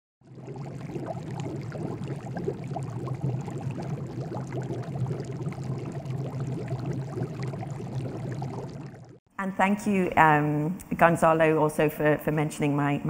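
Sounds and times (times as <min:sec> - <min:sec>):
water bubbling and pouring: 0:00.2 - 0:09.3.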